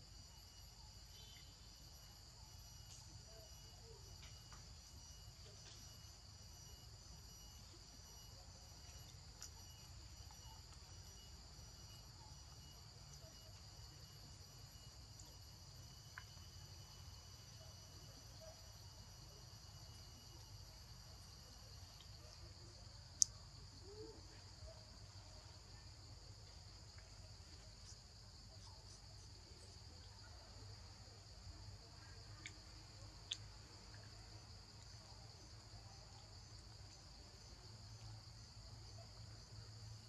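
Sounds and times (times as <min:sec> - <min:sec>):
forest insects droning: 0:00.0 - 0:40.0.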